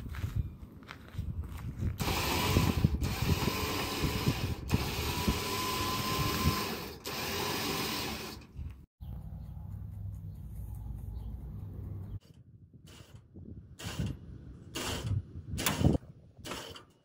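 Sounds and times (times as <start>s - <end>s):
electric winch running: 2.0s - 8.5s.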